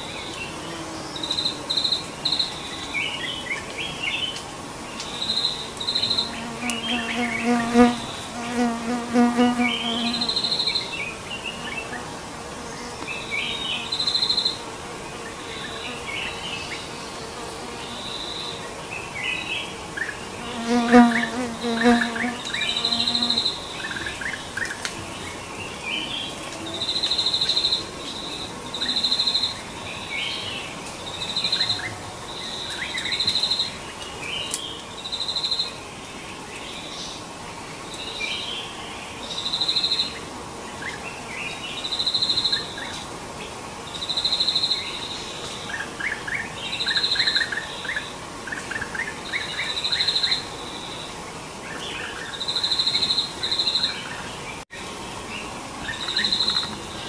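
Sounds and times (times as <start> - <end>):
buzzing insect trill: 5.3 - 10.9, 20.4 - 23.7.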